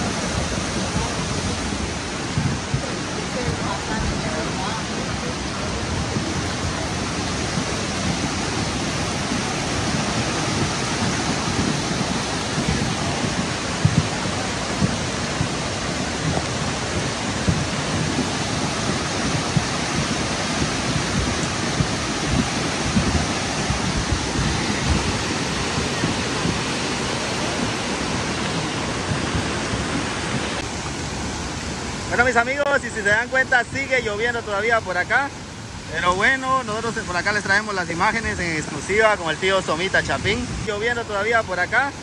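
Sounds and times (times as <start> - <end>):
low thumps: 0.0 - 32.2
river rushing: 0.0 - 42.0.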